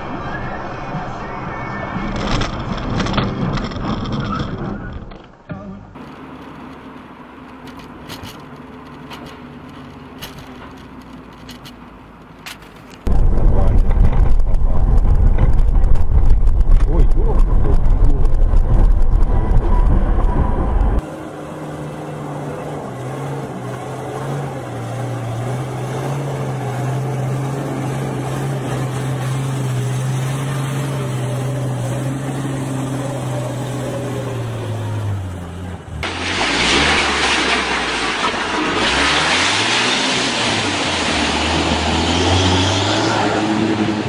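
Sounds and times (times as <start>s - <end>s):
loud low rumble: 13.1s - 21.0s
truck engine running: 13.1s - 38.7s
water splashing around a van: 22.3s - 42.6s.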